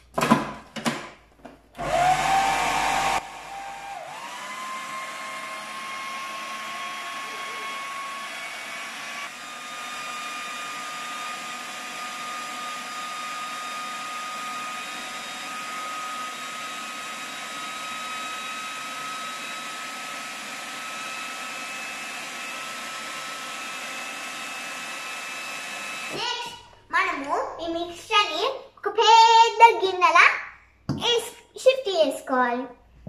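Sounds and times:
food processor motor whining: 0:01.8 - 0:26.2.

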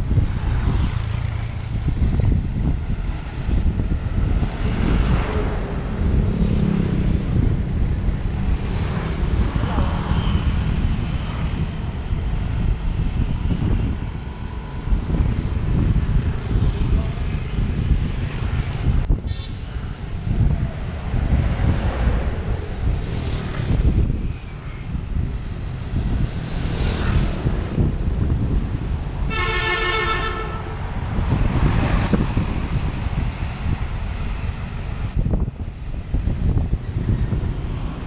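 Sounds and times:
wind and road rumble: 0:00.0 - 0:38.0
vehicle horn honking: 0:19.2 - 0:19.6, 0:29.3 - 0:30.8.

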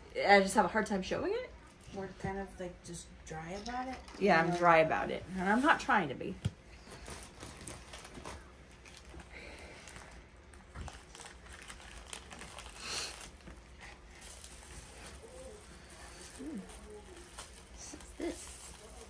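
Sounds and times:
packaging rustling and clicking: 0:06.9 - 0:19.0.

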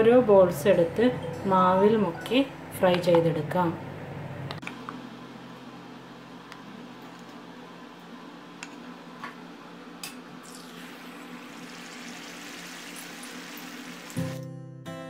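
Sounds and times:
hot oil sizzling: 0:10.4 - 0:14.4.

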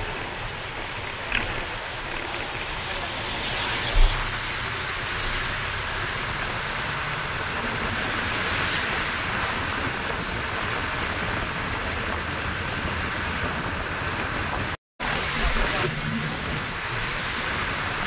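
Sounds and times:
wind and road noise in bus: 0:00.0 - 0:18.0
low rumble: 0:02.1 - 0:05.6.

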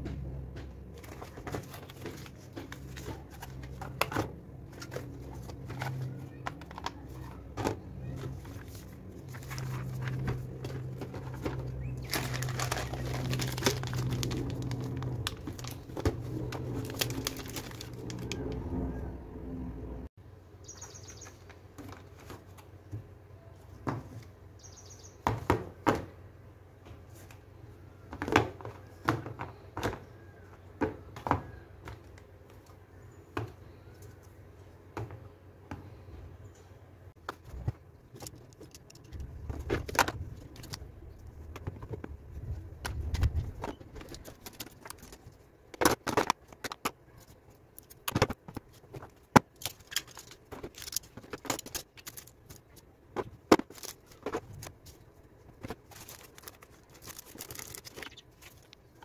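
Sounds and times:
plastic items clicking in plastic box: 0:01.0 - 0:18.5, 0:47.8 - 0:54.9, 0:55.6 - 0:59.0.

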